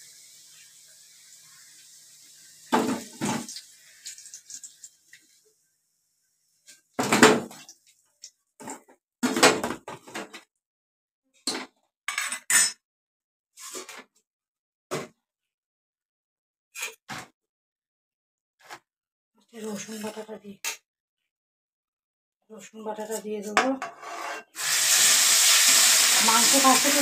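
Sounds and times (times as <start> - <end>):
frying oil sizzling: 0.0 - 5.5, 24.6 - 27.0.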